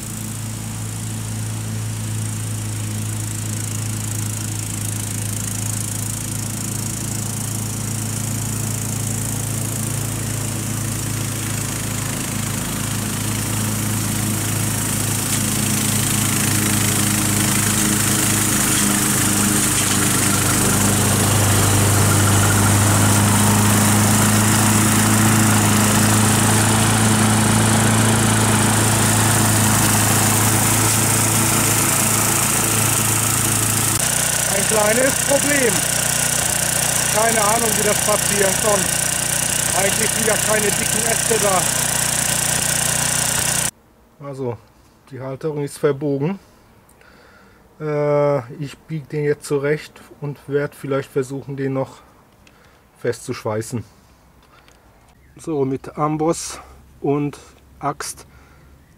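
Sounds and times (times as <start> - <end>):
ride-on mower engine mowing: 0.0 - 43.7.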